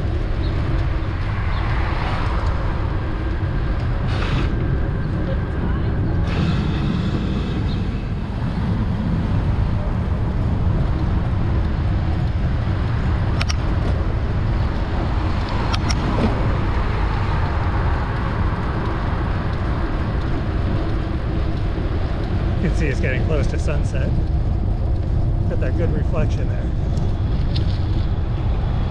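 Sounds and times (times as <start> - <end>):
city road traffic: 0.0 - 28.9
wind rumble on microphone: 0.0 - 28.9
sharp click: 13.4 - 13.6.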